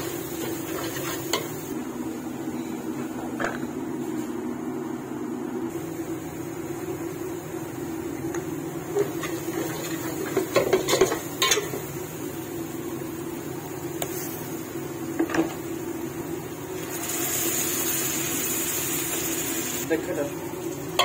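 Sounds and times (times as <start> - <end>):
chicken sizzling in masala: 0.0 - 1.8, 16.6 - 21.0.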